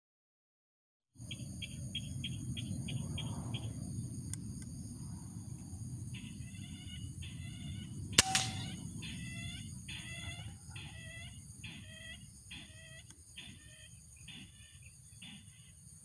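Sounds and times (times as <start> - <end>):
rifle shot: 8.2 - 8.8
harsh clucking bird calls: 8.2 - 15.5.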